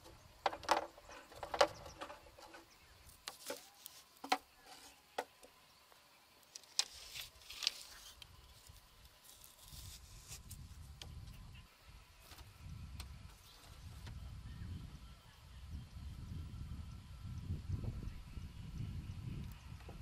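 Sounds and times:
bamboo stakes clacking: 0.0s - 5.5s, 6.4s - 11.2s.

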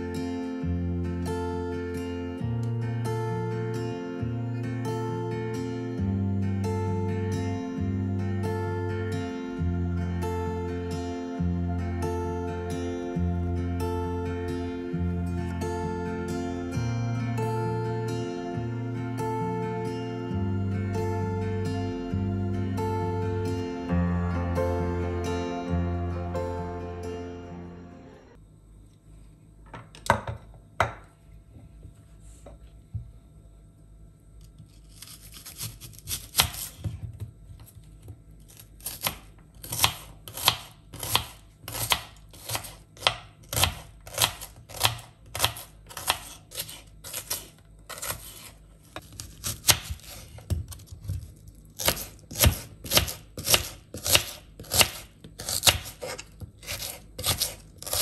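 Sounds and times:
knife slicing on cutting board: 38.8s - 51.0s, 51.8s - 58.0s.

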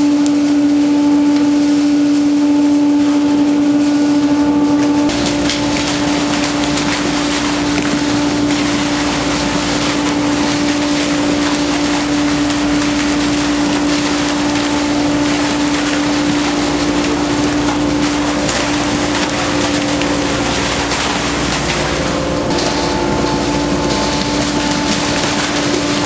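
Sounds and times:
fish pump machine hum: 0.0s - 26.0s
rush of water and fish: 0.0s - 26.0s.

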